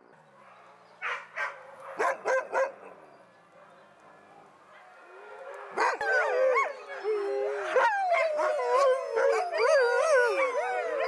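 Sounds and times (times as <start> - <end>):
sled dogs howling and yelping: 4.8 - 11.0.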